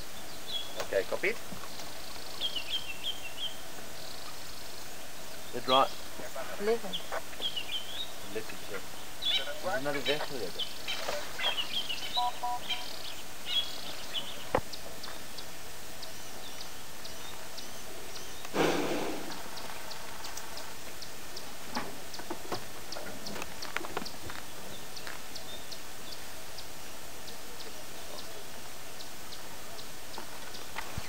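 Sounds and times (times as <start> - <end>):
short loud rush of noise: 18.5 - 19.4.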